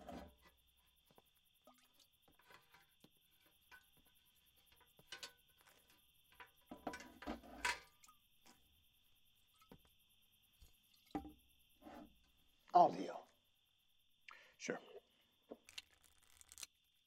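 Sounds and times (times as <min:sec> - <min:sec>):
metal chair scraping: 0:06.8 - 0:07.8.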